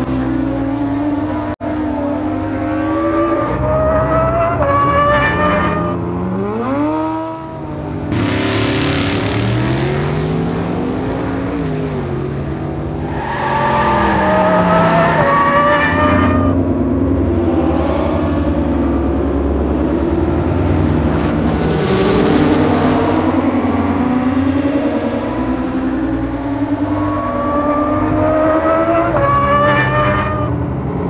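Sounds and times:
race car engines revving: 2.5s - 6.0s, 13.0s - 16.6s, 26.9s - 30.5s
rushing noise: 2.7s - 6.0s, 13.0s - 16.6s, 26.9s - 30.5s.

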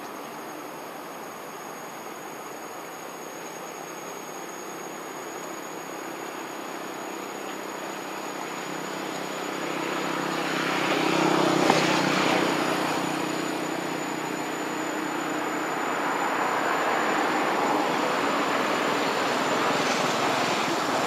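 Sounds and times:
engine passing by: 8.6s - 21.0s.

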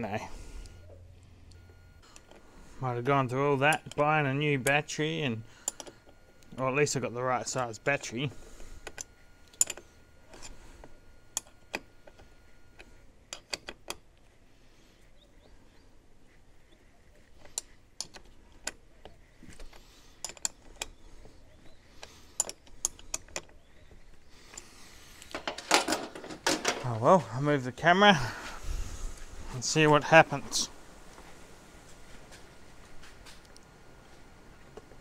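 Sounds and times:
hand tools clicking and knocking: 3.3s - 6.9s, 8.8s - 14.1s, 17.1s - 27.0s.

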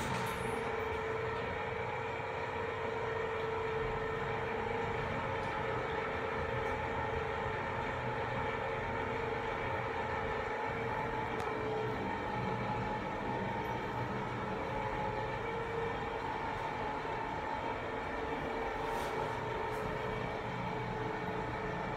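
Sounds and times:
elevator rushing hum: 0.0s - 21.9s
mid-pitched whine: 9.1s - 21.9s.

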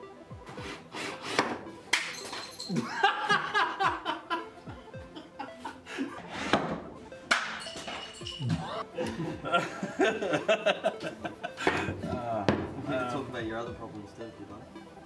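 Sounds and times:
background music: 0.0s - 15.0s
men laughing heartily: 2.7s - 6.4s, 8.8s - 12.4s.

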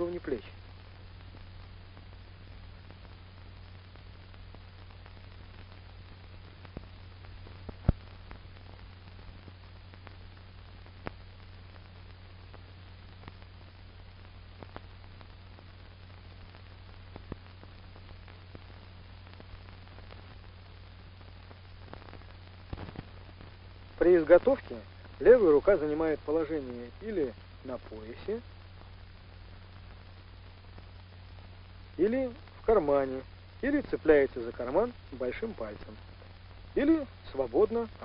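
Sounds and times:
film soundtrack hiss and hum: 0.0s - 38.0s
clicks and pops: 6.6s - 8.5s, 21.4s - 23.6s.

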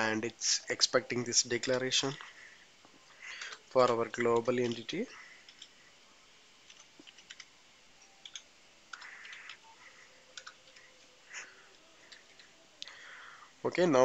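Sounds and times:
keyboard typing clicks: 6.7s - 7.5s, 8.2s - 9.6s, 10.3s - 10.9s.

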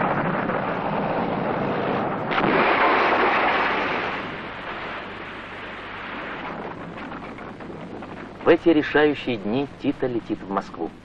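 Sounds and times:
loud crash: 0.0s - 8.2s
rushing rumbling noise: 0.0s - 10.2s.

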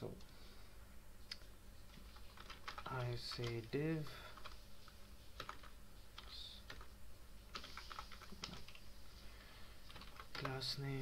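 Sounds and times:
typing on computer keyboard: 2.2s - 3.7s, 5.4s - 6.9s, 7.5s - 8.8s, 9.9s - 10.6s.

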